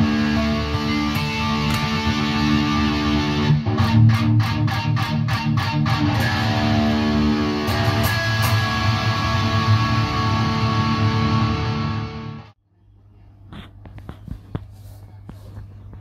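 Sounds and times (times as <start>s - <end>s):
electric guitar chords and picked notes: 0.0s - 12.6s.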